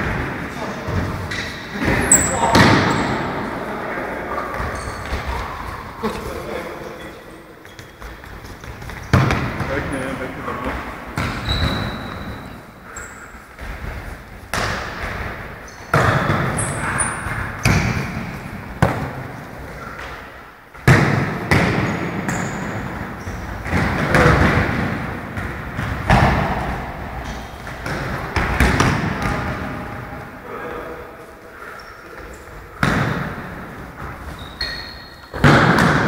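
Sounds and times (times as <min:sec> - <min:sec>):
ball thuds echoing in hall: 0:00.0 - 0:36.0
sneakers squeaking on court: 0:00.9 - 0:03.4, 0:04.4 - 0:05.8, 0:07.6 - 0:09.8, 0:11.2 - 0:13.8, 0:14.5 - 0:18.2, 0:21.5 - 0:24.6, 0:33.9 - 0:36.0.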